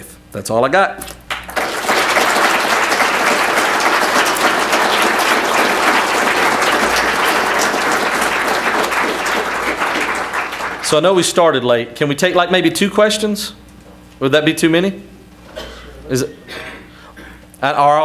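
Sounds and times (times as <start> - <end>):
audience applauding: 1.3 - 11.3.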